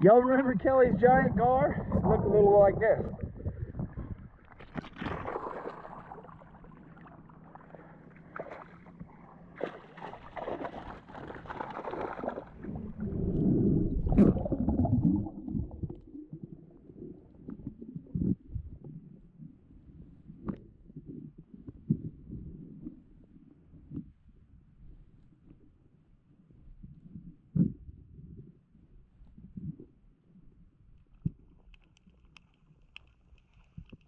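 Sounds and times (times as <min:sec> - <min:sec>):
water splashing and sloshing: 0:01.5 - 0:18.2.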